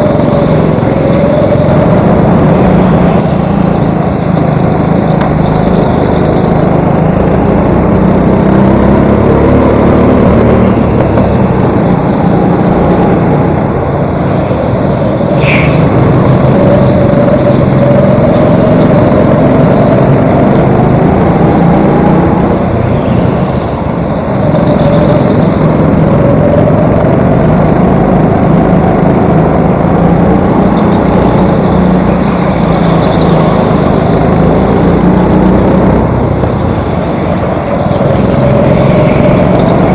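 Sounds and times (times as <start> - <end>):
go-kart engine revving: 0.0 - 39.9.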